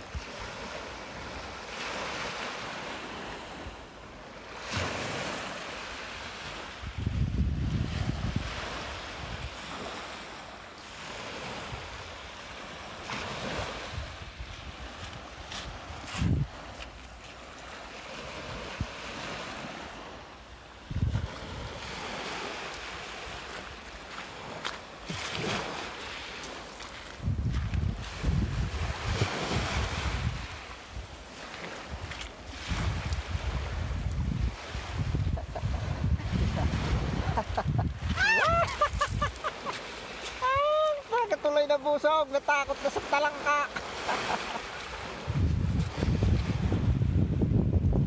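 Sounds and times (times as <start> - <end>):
small waves washing up shore: 0.0 - 48.0
wind buffeting microphone: 6.8 - 9.9, 13.4 - 16.8, 20.9 - 22.0, 27.2 - 31.2, 31.8 - 39.4, 44.9 - 48.0
waves breaking on shingle: 36.6 - 40.4.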